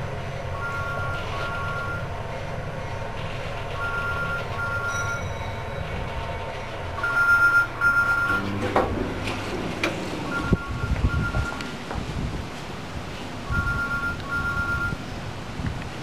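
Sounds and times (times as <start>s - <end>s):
elevator running hum: 0.0s - 16.0s
two-tone electronic beep: 0.6s - 2.1s, 3.8s - 5.3s, 7.0s - 8.4s, 10.3s - 11.6s, 13.5s - 15.0s.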